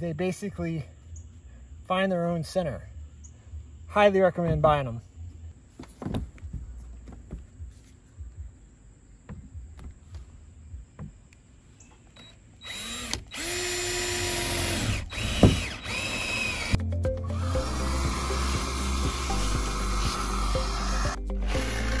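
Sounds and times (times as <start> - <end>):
power drill boring through metal: 12.6 - 22.0.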